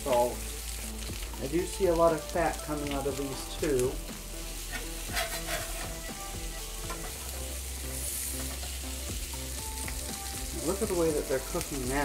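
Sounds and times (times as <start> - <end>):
patties sizzling in a pan: 0.0 - 12.0
metal spatula scraping a pan: 4.5 - 7.5.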